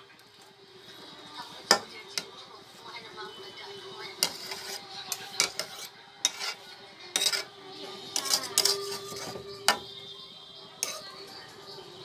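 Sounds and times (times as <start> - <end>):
metal spatula scraping a wok: 4.1 - 9.9, 10.8 - 11.2.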